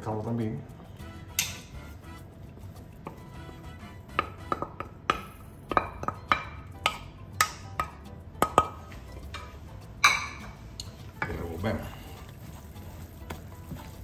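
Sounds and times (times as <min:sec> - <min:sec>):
spoon knocking against pot: 0:04.1 - 0:08.8, 0:09.4 - 0:10.5
spoon stirring thick dough: 0:10.8 - 0:14.0.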